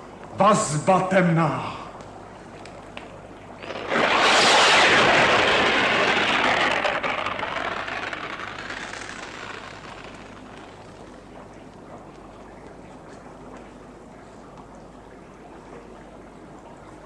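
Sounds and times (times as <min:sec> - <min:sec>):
loud rushing hiss: 0:03.6 - 0:07.7.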